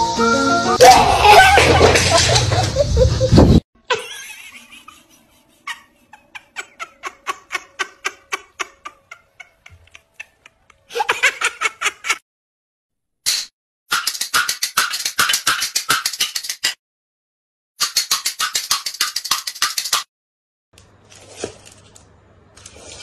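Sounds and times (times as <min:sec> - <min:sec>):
giggling laughter: 0:01.1 - 0:12.2.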